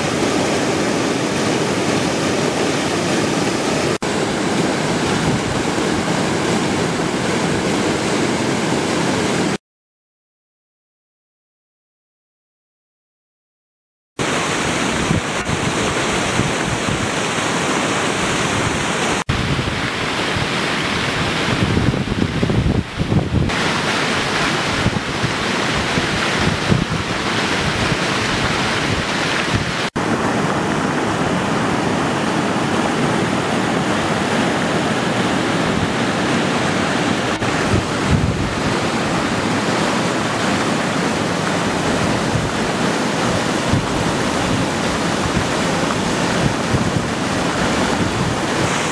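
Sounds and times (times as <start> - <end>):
flood water roaring: 0.0 - 9.6, 14.2 - 48.9
wind buffeting microphone: 4.1 - 7.9, 14.6 - 17.3, 18.1 - 23.6, 24.6 - 34.3, 35.5 - 40.6, 41.3 - 48.9.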